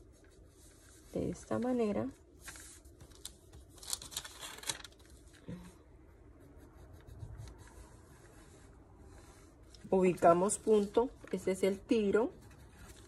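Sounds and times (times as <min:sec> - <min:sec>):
paper rustling: 0:00.2 - 0:05.5
pencil scratching on paper: 0:06.3 - 0:13.0.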